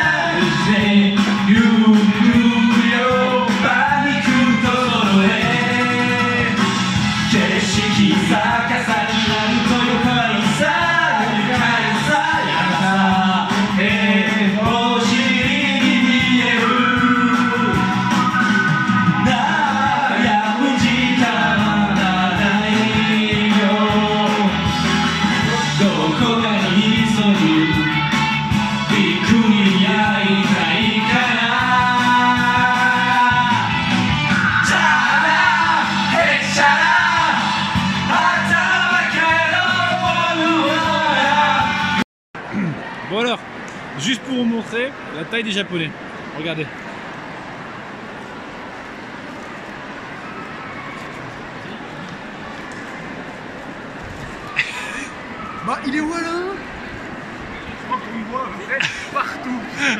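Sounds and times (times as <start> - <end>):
man singing karaoke: 0.0 - 42.0
karaoke backing track: 0.0 - 42.8.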